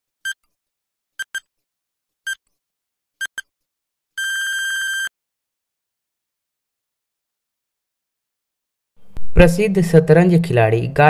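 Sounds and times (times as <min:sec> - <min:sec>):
short high beeps: 0:01.2 - 0:01.4, 0:04.2 - 0:05.1
long steady beep: 0:04.2 - 0:05.1.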